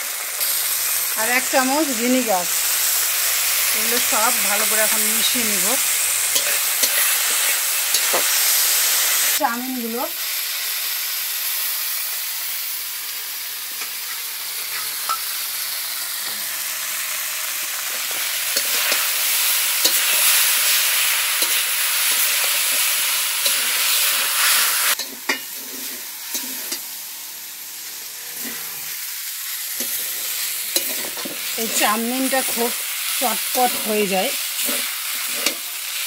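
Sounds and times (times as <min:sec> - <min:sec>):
noodles sizzling in a pan: 0:00.0 - 0:36.0
metal spatula scraping a pan: 0:02.6 - 0:09.3, 0:14.1 - 0:15.3, 0:17.8 - 0:26.9, 0:28.1 - 0:29.0, 0:29.7 - 0:32.8, 0:33.6 - 0:36.0.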